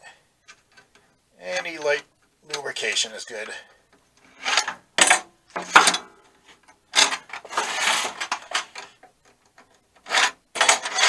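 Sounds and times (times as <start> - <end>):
metal drawer slides scraping: 7.0 - 8.9, 10.0 - 11.0.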